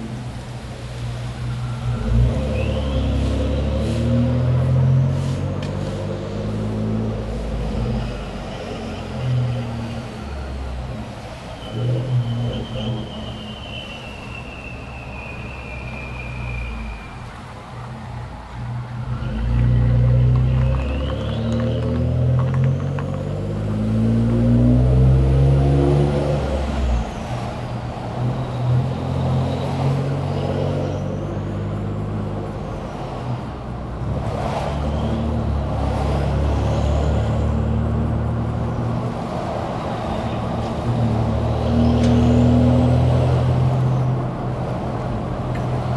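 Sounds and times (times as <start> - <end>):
engine low drone: 0.0 - 13.6, 14.3 - 45.9
exhaust whistle: 1.4 - 4.5, 11.5 - 17.3, 19.3 - 23.2.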